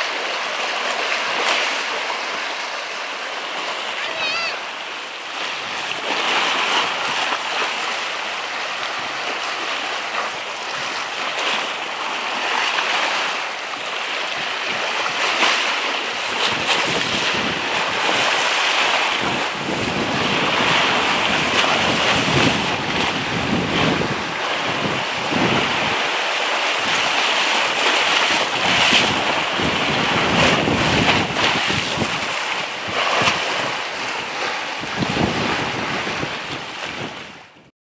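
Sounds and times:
waves washing on rocks: 0:00.0 - 0:37.5
wind buffeting microphone: 0:14.1 - 0:37.7.

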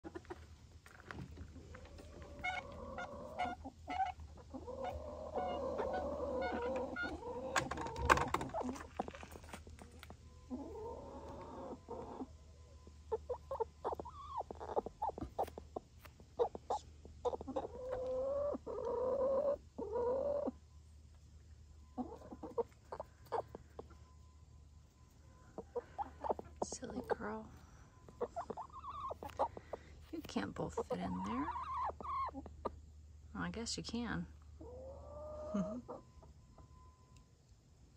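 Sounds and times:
hens clucking: 0:00.0 - 0:20.7, 0:21.7 - 0:24.2, 0:25.3 - 0:33.5, 0:34.5 - 0:36.8
hens giving wavering calls: 0:01.6 - 0:09.1, 0:10.4 - 0:20.7, 0:21.9 - 0:24.1, 0:25.2 - 0:32.8, 0:34.5 - 0:36.4.

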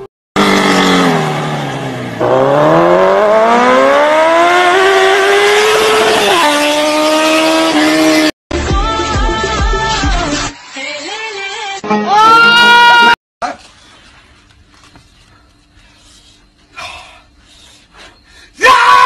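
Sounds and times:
vehicle engine revving: 0:00.4 - 0:08.3.

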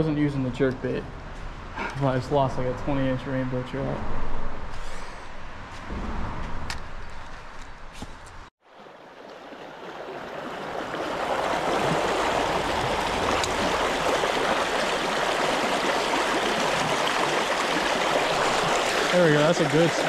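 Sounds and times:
creek water running over rocks: 0:08.6 - 0:20.0.

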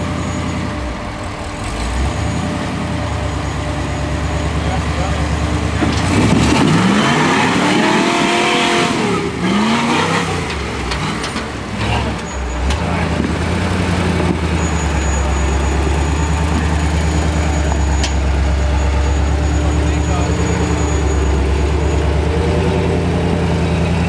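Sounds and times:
off-road engine revving: 0:00.0 - 0:24.0.

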